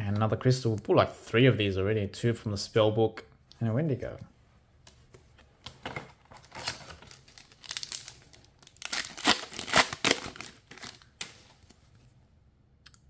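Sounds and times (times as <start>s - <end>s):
foil pack crinkling and tearing: 6.4s - 11.6s.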